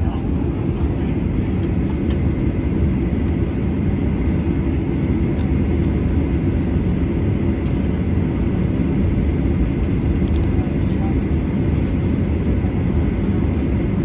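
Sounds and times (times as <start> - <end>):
jet engines and wheels rumbling: 0.0 - 14.0.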